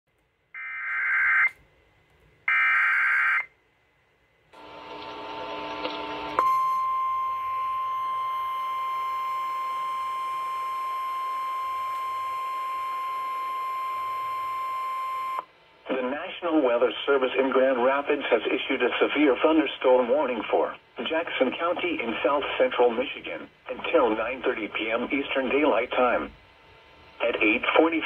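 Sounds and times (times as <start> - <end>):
screeching data bursts: 0.6 - 1.6.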